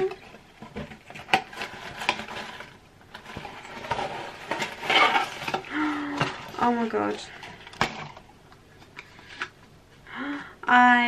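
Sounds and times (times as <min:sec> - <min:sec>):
cardboard box rustling: 0:00.1 - 0:08.2.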